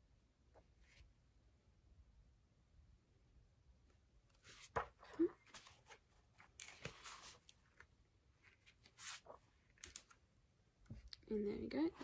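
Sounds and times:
book pages turning: 4.4 - 10.2.

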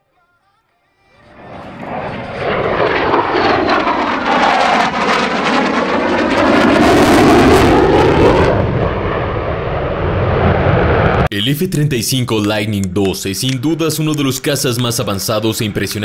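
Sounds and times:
fighter jet afterburner roar: 1.2 - 11.3
jet crackling: 1.2 - 11.3.

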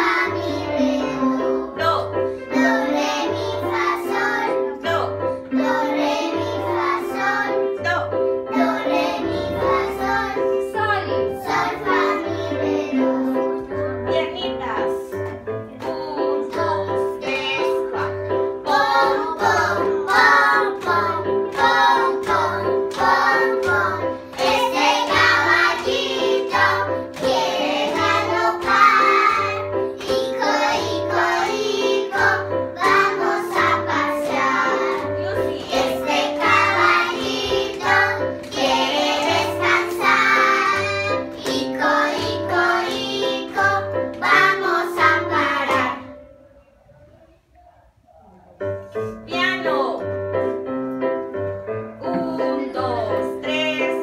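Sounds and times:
children singing: 0.0 - 1.8, 2.5 - 4.8, 11.4 - 13.7, 15.9 - 47.2.

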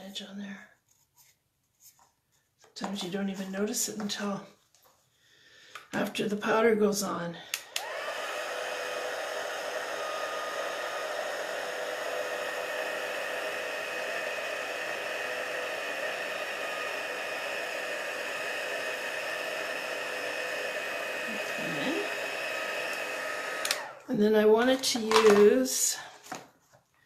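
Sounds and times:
heat tool blowing hot air: 7.5 - 24.1.

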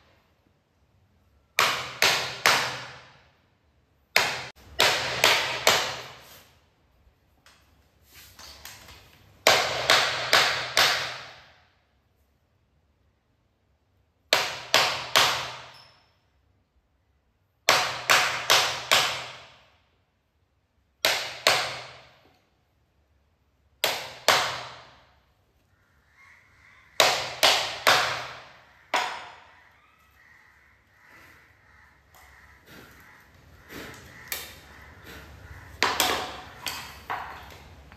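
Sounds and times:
hammer striking chisel: 1.5 - 3.2, 4.1 - 6.2, 9.4 - 11.5, 14.3 - 16.1, 17.7 - 19.6, 21.0 - 22.3, 23.8 - 25.1, 27.0 - 29.5, 33.9 - 37.6.

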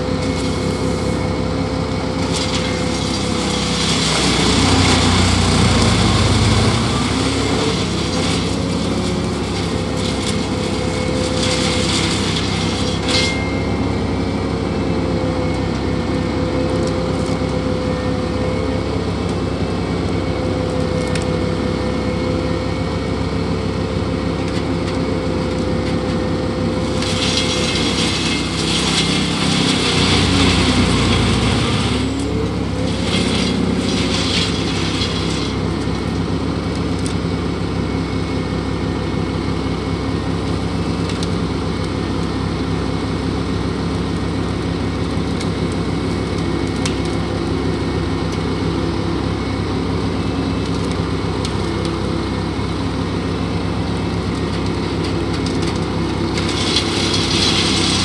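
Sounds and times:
truck engine running under load: 0.0 - 58.0
wood chipper crunching: 0.0 - 58.0.

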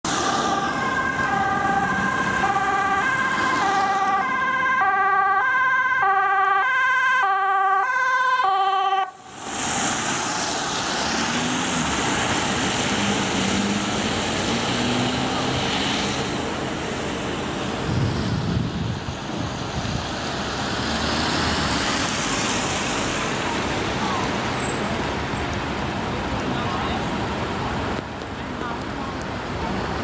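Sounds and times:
two-tone emergency siren: 0.1 - 9.4.

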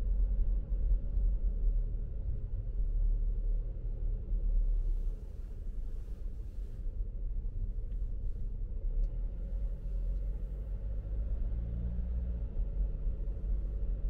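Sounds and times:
car road and engine rumble: 0.0 - 14.0
faint engine hum: 0.0 - 14.0.

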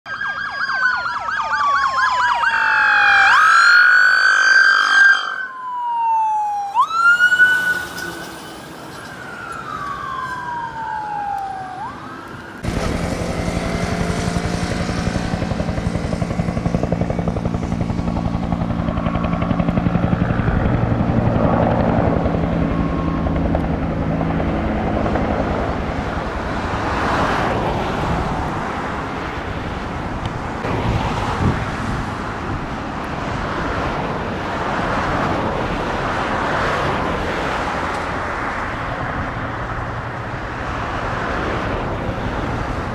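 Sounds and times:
siren sweeping in pitch: 0.1 - 15.0, 21.4 - 23.8.

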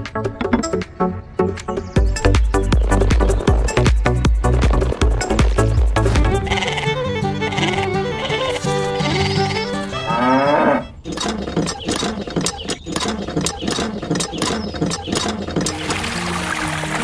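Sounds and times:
music with quick even beat: 2.0 - 6.6
cow mooing: 10.0 - 11.0.

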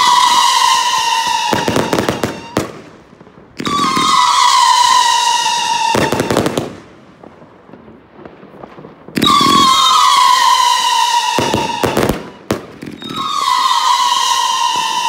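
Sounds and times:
shrill firework whistle: 0.0 - 2.8, 3.6 - 6.7, 9.2 - 15.0
firework bangs and crackles: 0.0 - 15.0.

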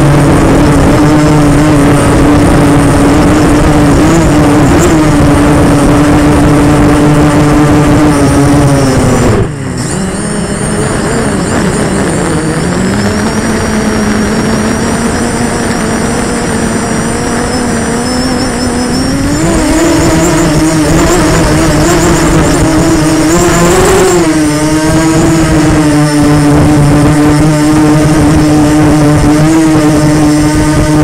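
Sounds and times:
quadcopter drone propellers buzzing: 0.0 - 31.0.

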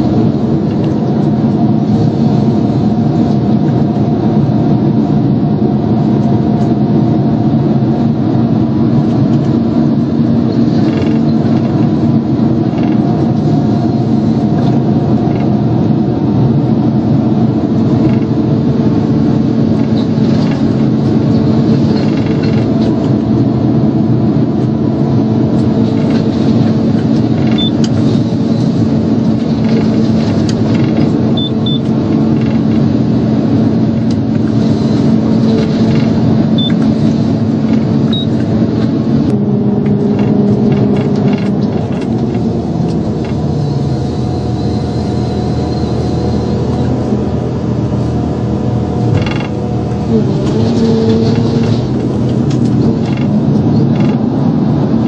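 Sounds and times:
harvester engine and hydraulics drone: 0.0 - 55.0.

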